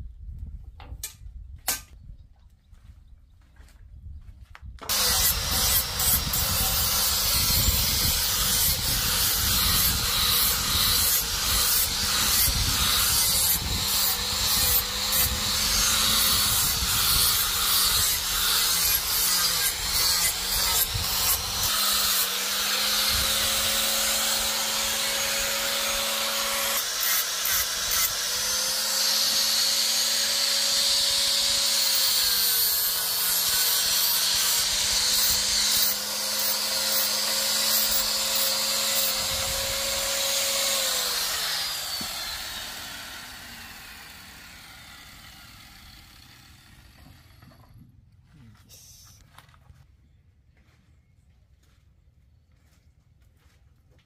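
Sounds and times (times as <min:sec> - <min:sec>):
electric grinder grinding: 0:04.9 - 0:47.4.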